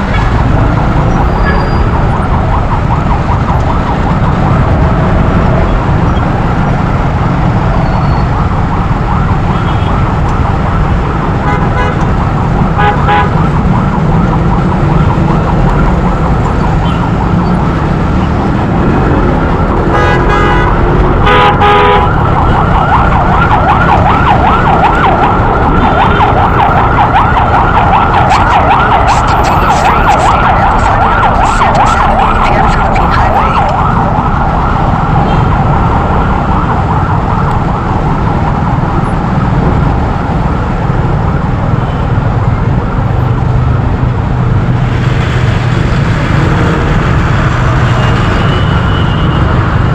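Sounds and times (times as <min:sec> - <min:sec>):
engine and road rumble: 0:00.0 - 0:49.9
warbling siren: 0:00.0 - 0:49.9
horn blast: 0:19.9 - 0:22.1.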